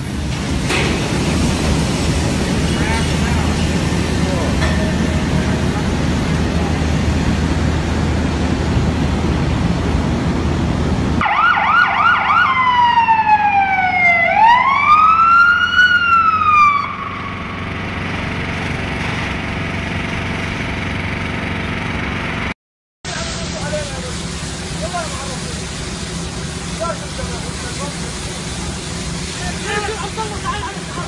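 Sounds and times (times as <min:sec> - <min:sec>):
low rumbling noise: 0:00.0 - 0:11.2, 0:12.6 - 0:22.5
emergency vehicle siren: 0:11.2 - 0:18.0.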